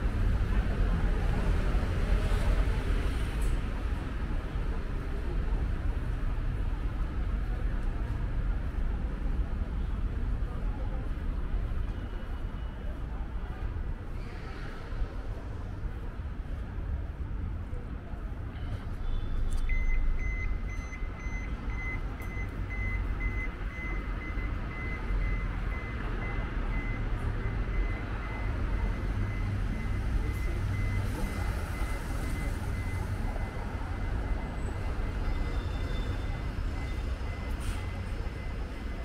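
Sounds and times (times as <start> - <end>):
city traffic rumble: 0.0 - 39.0
electronic warning beeps: 19.5 - 39.0.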